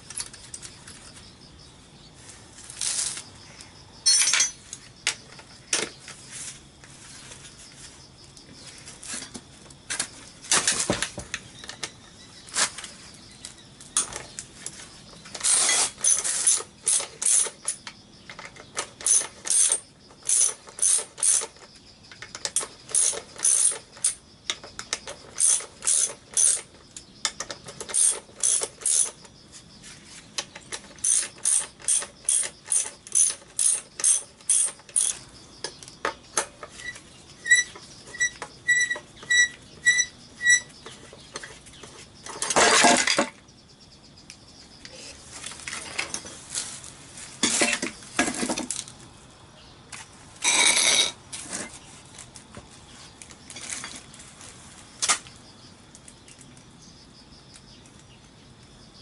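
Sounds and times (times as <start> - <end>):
ratchet wrench clicking: 19.0 - 21.6, 22.5 - 24.2, 24.8 - 26.7, 27.8 - 29.2, 31.0 - 35.2.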